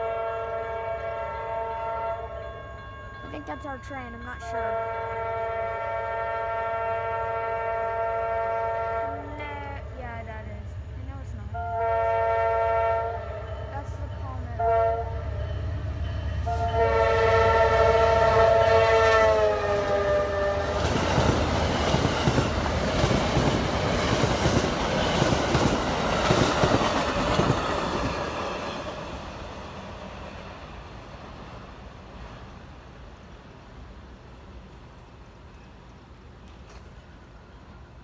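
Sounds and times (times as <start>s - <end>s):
train horn: 0.0s - 2.7s, 4.5s - 9.8s, 11.5s - 15.5s, 16.4s - 21.3s
train wheels clattering over rails: 20.7s - 30.3s.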